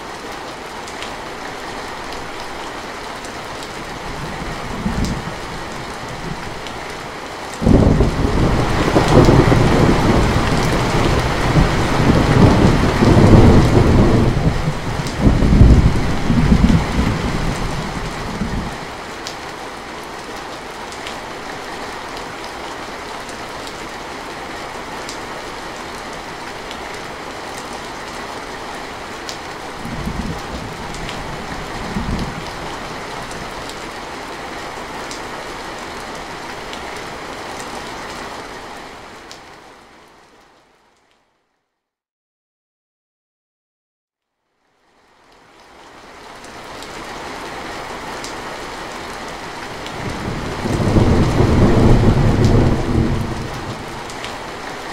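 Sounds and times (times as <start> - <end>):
heavy rain on metal roof: 0.0 - 41.1, 44.8 - 54.9
thunder rumbling: 7.6 - 18.8, 50.0 - 54.3.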